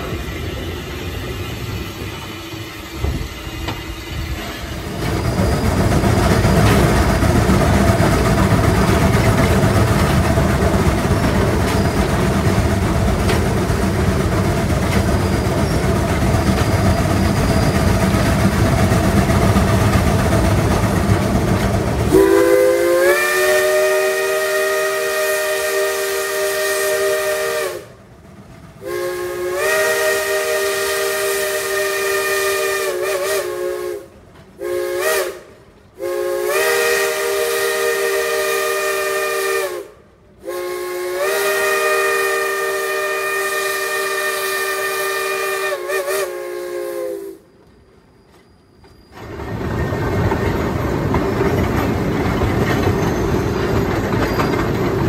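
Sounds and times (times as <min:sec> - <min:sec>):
steam train rumble: 0:00.0 - 0:55.0
chime steam whistle blasts: 0:22.1 - 0:27.9, 0:28.8 - 0:35.4, 0:36.0 - 0:47.6.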